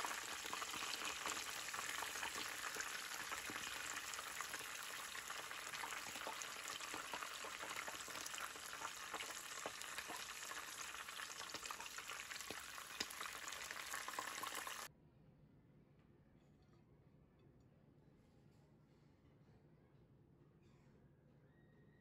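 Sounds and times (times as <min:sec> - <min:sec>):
cutlet deep-frying in oil: 0:00.0 - 0:14.9.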